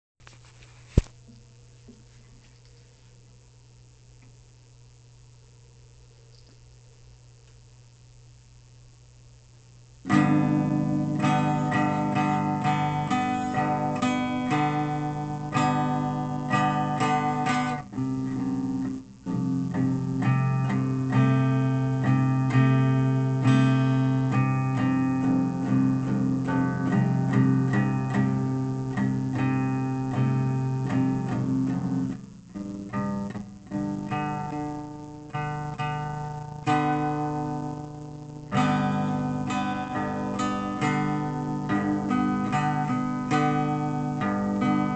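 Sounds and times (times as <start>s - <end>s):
acoustic guitar chords: 9.9s - 44.9s.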